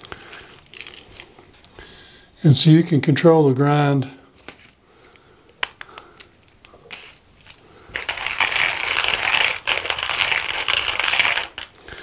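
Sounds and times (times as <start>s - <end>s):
coffee grinder crushing beans: 6.9s - 12.0s.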